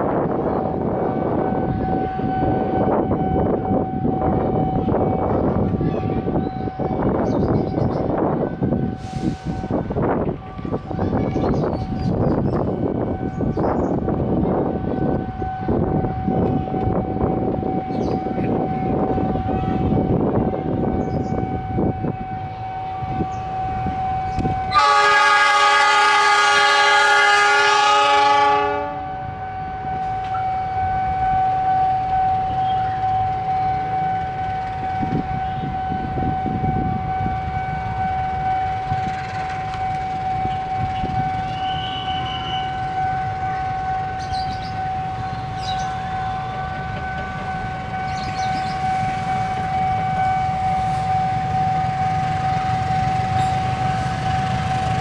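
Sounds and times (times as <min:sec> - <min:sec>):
locomotive engine rumbling: 0:00.0 - 0:55.0
locomotive horn blast: 0:14.0 - 0:55.0.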